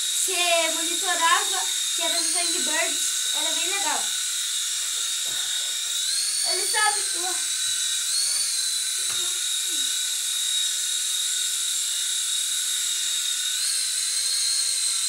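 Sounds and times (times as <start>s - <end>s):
toy drone motor whining: 0.0s - 15.0s.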